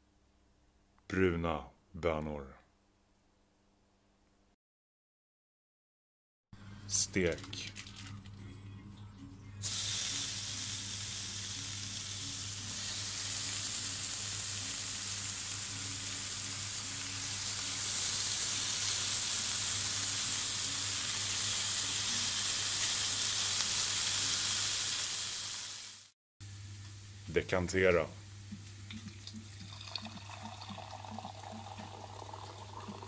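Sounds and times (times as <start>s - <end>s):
pork sizzling in a frying pan: 9.6s - 27.2s.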